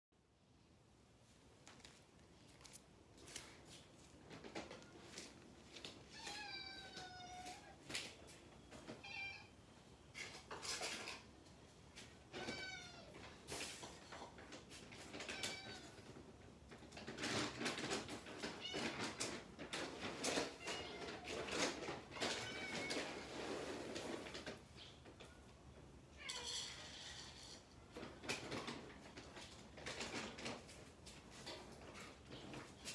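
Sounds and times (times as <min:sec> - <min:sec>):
cats meowing: 0:05.8 - 0:07.9, 0:08.8 - 0:09.6, 0:12.3 - 0:13.4, 0:15.0 - 0:16.3, 0:18.2 - 0:23.6
plastic bag of cat food rustling: 0:12.4 - 0:24.7, 0:27.9 - 0:32.9.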